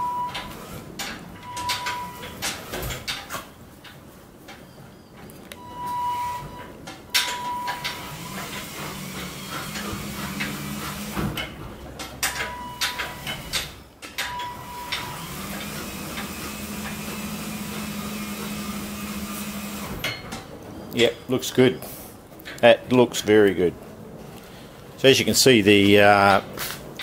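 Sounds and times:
electric motors humming: 0:07.4 - 0:11.6, 0:14.5 - 0:20.0.

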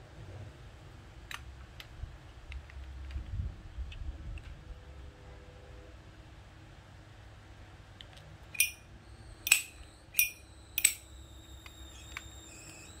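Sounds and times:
lighter lid metallic clinks: 0:08.6 - 0:08.8, 0:09.5 - 0:11.0.

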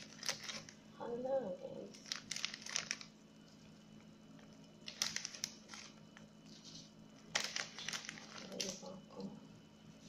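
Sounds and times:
plastic sheeting crinkling: 0:00.0 - 0:00.8, 0:01.8 - 0:03.2, 0:04.8 - 0:09.0
faint steady hum: 0:00.0 - 0:10.0.

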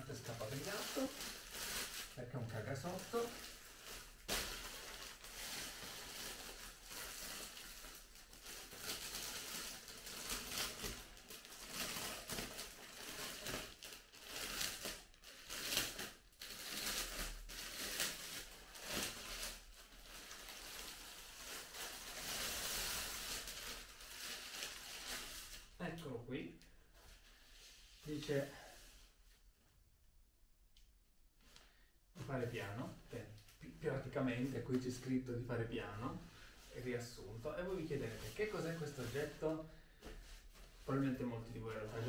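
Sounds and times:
plastic bag crinkling: 0:00.0 - 0:25.8.

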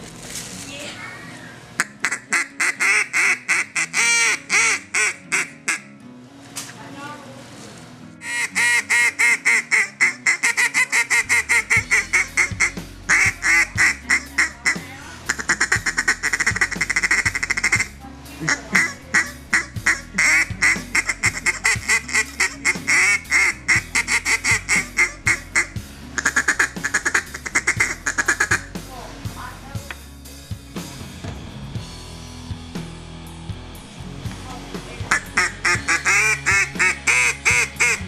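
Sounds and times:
duck call quacking notes: 0:01.8 - 0:05.9, 0:08.2 - 0:28.7, 0:35.1 - 0:38.0.

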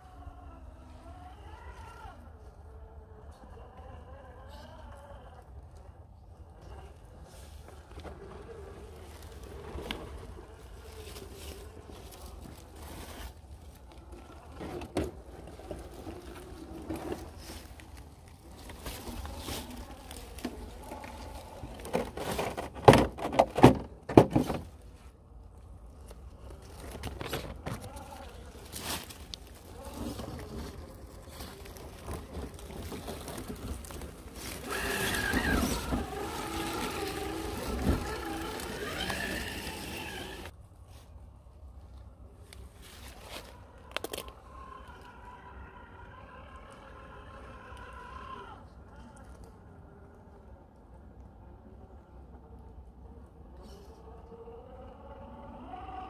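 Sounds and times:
rustling leaf litter: 0:06.8 - 0:22.8, 0:26.0 - 0:41.1
faint wavering motor whine: 0:34.0 - 0:40.5.

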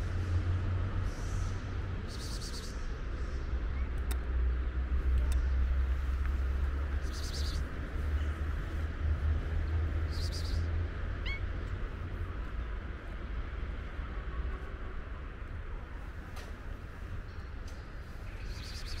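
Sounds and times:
steady low rumble: 0:00.0 - 0:19.0
cat meowing: 0:11.2 - 0:11.5.

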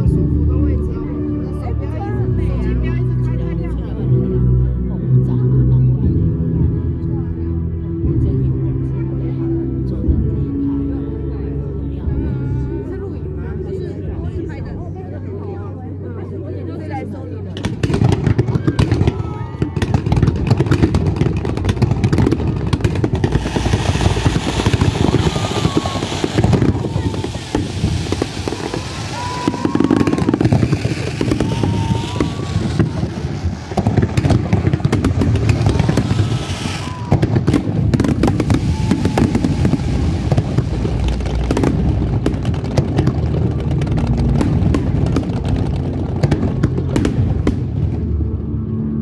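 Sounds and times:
fireworks bangs and crackles: 0:17.6 - 0:48.4
deep rumble: 0:17.8 - 0:49.0.

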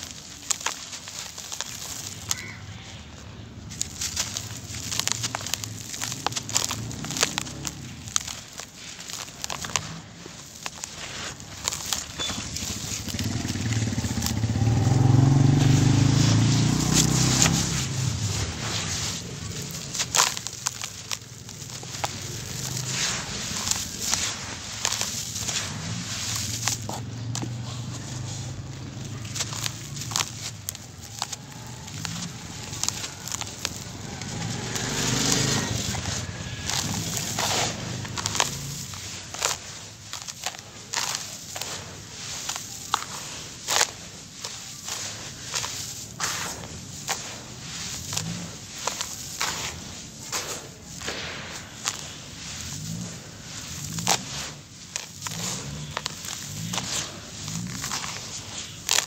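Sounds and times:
charcoal crunching in plastic tub: 0:00.0 - 0:59.0
vehicle engine passing by: 0:03.5 - 0:08.4, 0:10.8 - 0:59.0.

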